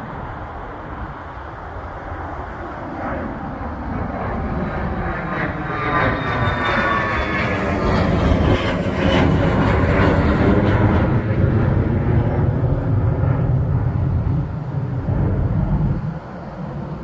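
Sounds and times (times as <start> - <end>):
jet engines roaring: 0.0 - 17.0.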